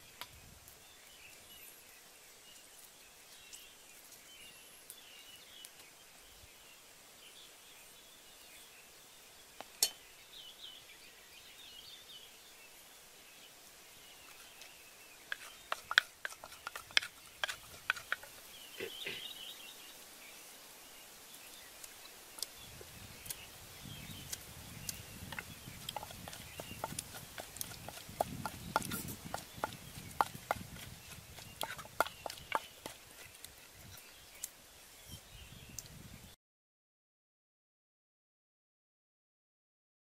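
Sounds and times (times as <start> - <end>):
faint bird chirps: 0.0 - 36.4
pestle knocking in clay mortar: 15.3 - 18.2, 25.3 - 33.4.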